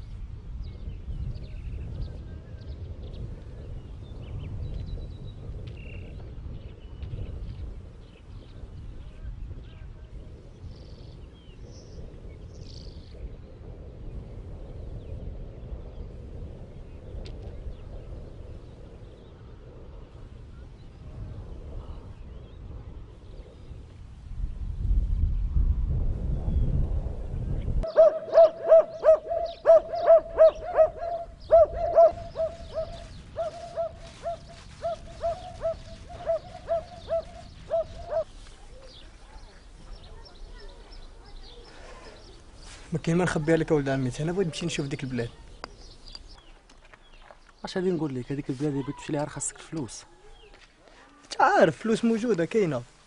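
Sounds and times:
wind rumbling on microphone: 0:00.0 - 0:53.0
dog barking: 0:27.9 - 0:33.0.

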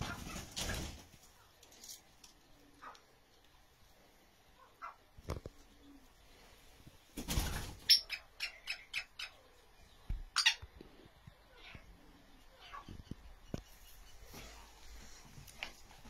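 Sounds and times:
wings flapping: 0:00.0 - 0:01.4, 0:07.1 - 0:08.0
sharp high-pitched bird calls: 0:07.6 - 0:09.5, 0:10.3 - 0:10.7.

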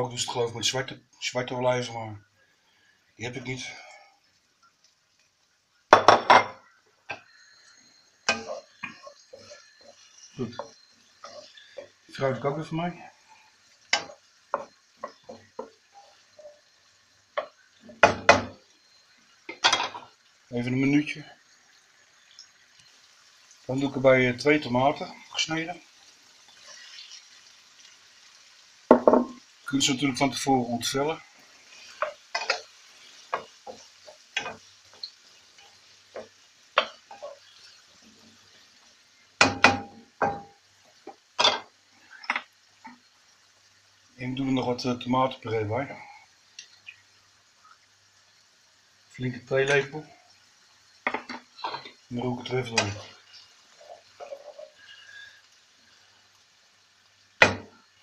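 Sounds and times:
faint sizzle of frying: 0:00.0 - 0:58.0
spatula scraping and knocking wok: 0:05.9 - 0:12.0, 0:13.9 - 0:16.6, 0:31.6 - 0:35.1, 0:39.4 - 0:40.5, 0:52.7 - 0:54.8.

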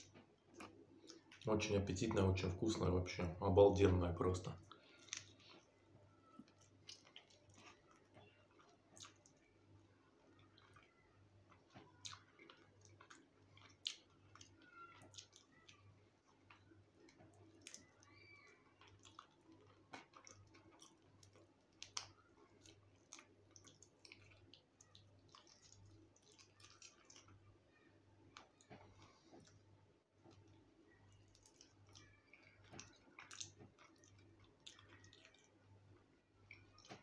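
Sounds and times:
man chewing food: 0:00.0 - 0:01.5, 0:03.8 - 0:37.0
faint low hum: 0:00.0 - 0:37.0
lip smacks: 0:00.1 - 0:01.5, 0:04.7 - 0:05.7, 0:06.4 - 0:09.5, 0:11.5 - 0:27.4, 0:30.3 - 0:37.0.

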